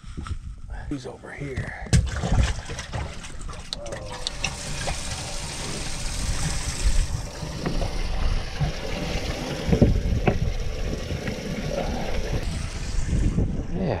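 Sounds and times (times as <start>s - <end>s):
wind rumbling on microphone: 4.2s - 14.0s.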